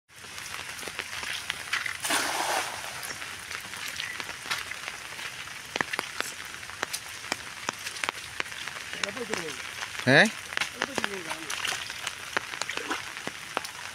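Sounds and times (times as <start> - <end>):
rain falling on water: 0.1 - 13.9
cast net splashing on water: 1.3 - 4.0, 10.7 - 13.9.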